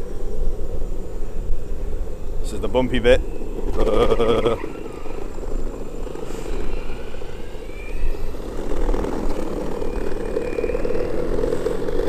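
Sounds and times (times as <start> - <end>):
wind buffeting microphone: 0.0 - 12.0
skateboard rumbling over pavement: 2.8 - 12.0.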